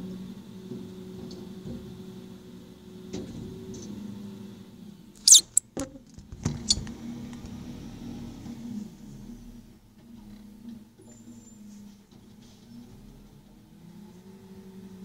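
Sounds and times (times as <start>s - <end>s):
sharp high-pitched squeak: 5.2s - 5.6s.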